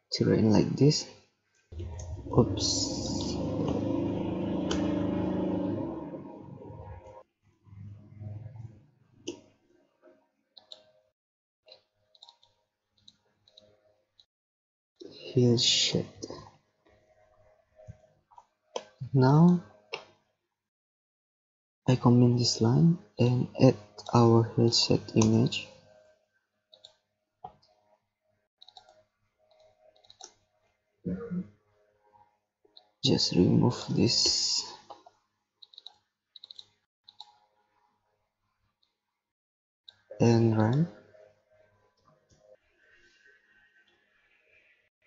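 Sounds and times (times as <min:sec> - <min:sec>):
low rumble: 0:01.8 - 0:07.2
keyboard and mouse clicks: 0:10.6 - 0:10.9, 0:11.7 - 0:13.7, 0:26.7 - 0:27.7, 0:28.6 - 0:30.4, 0:34.3 - 0:37.4.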